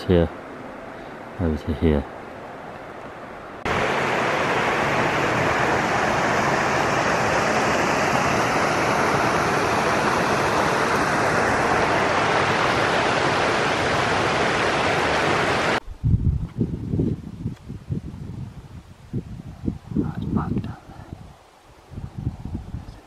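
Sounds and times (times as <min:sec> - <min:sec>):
stream rushing over stones: 0:03.7 - 0:15.8.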